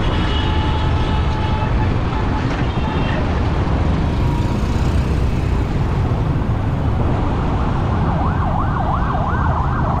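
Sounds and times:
traffic rumble: 0.0 - 10.0
motorcycle engine: 3.8 - 6.5
siren wailing: 8.0 - 10.0.

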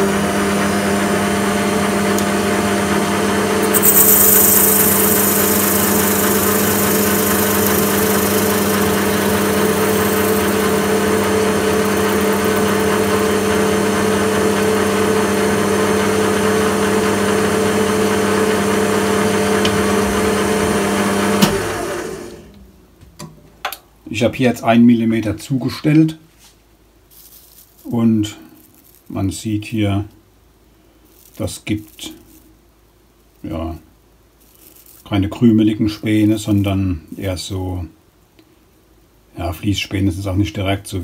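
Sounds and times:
metal lathe humming: 3.6 - 22.4.

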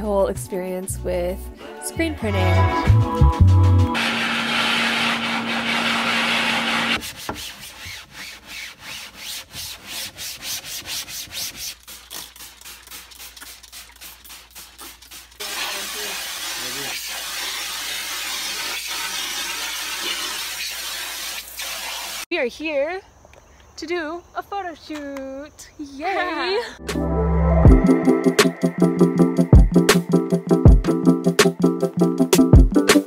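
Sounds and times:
water spray gun hissing: 4.0 - 7.0, 11.7 - 22.3
scrubbing strokes on a screen: 4.0 - 22.2
low hum: 26.8 - 29.8.

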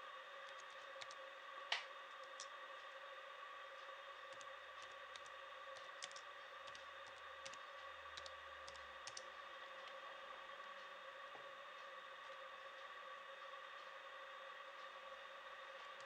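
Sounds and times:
steady electrical hum: 0.0 - 16.0
laptop keyboard typing: 0.5 - 1.2, 2.2 - 2.5, 4.3 - 9.3.

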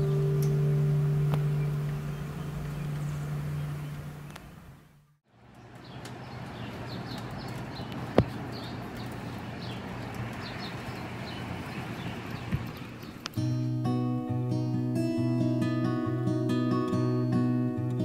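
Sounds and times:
steady low hum: 0.0 - 13.4
small birds chirping: 0.0 - 13.9.

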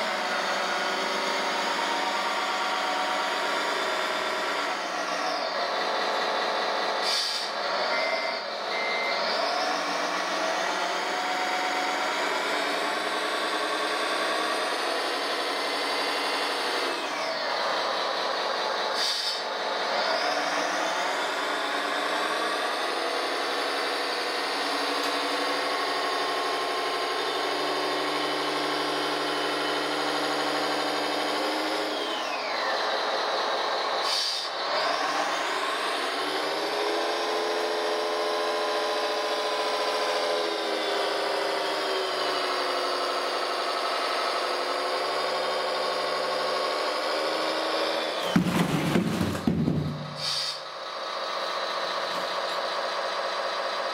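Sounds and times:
short hiss: 50.2 - 50.6.

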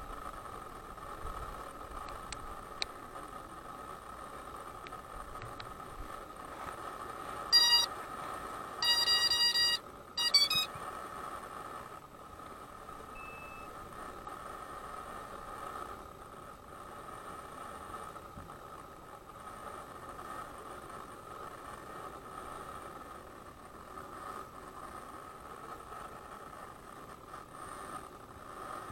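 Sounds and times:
faint steady hum: 0.0 - 28.9
drone electronic beeps: 7.6 - 7.9, 8.8 - 10.7, 13.2 - 13.7.

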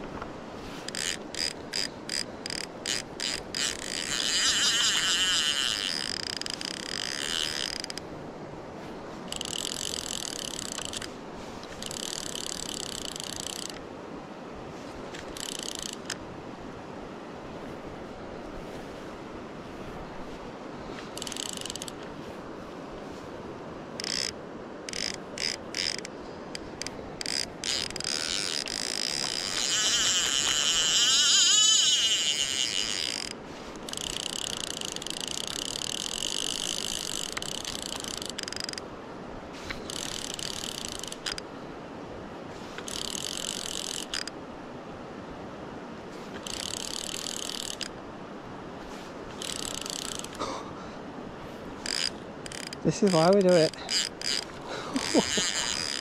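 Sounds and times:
fishing reel ratchet buzzing: 0.9 - 8.0, 9.3 - 11.1, 11.7 - 13.8, 15.2 - 16.2, 21.2 - 22.0, 24.0 - 38.8, 39.6 - 41.4, 42.8 - 44.4, 46.4 - 47.9, 49.3 - 50.4, 51.8 - 56.0.

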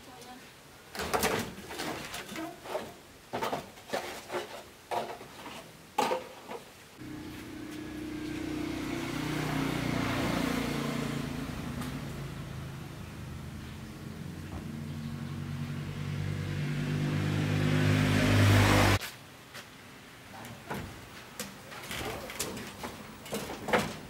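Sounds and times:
low mechanical hum: 7.0 - 9.8
sheet-metal knocks and clanks: 21.8 - 24.0.

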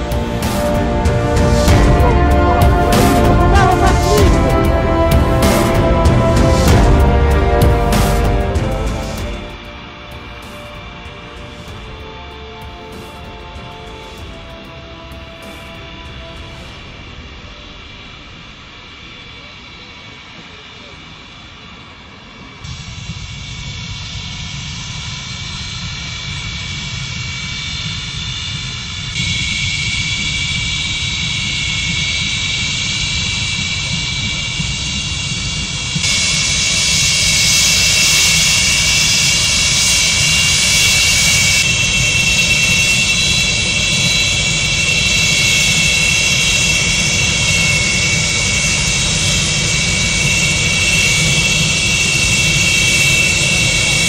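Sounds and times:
jet engines whining and rumbling: 0.0 - 54.0.

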